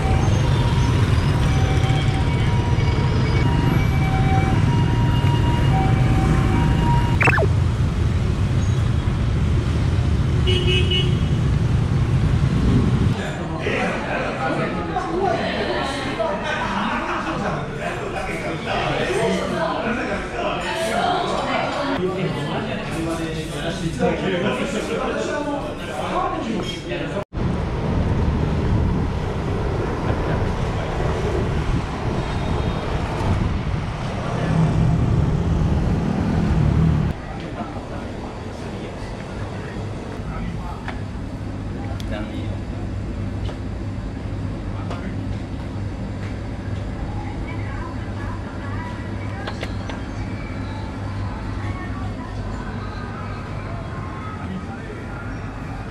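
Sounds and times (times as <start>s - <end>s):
street traffic rumble: 0.0s - 13.3s, 27.4s - 55.9s.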